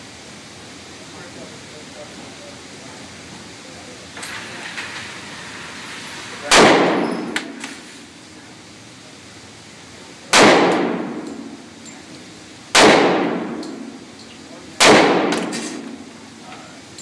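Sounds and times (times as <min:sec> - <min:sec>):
pistol shots echoing: 0:06.5 - 0:07.4, 0:10.3 - 0:11.6, 0:12.7 - 0:13.9, 0:14.8 - 0:16.0.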